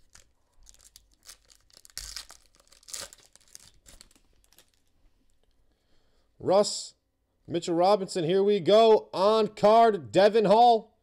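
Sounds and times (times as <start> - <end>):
foil wrapper tearing and crinkling: 0.0 - 4.9.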